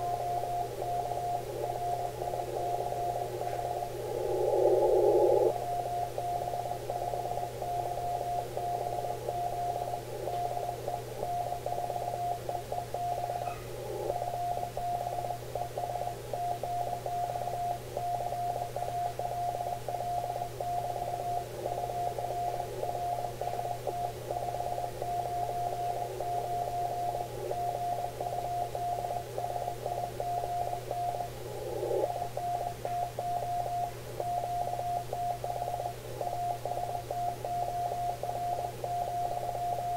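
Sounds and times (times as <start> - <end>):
radio hiss: 0.0 - 7.7, 13.7 - 14.3, 31.4 - 32.2.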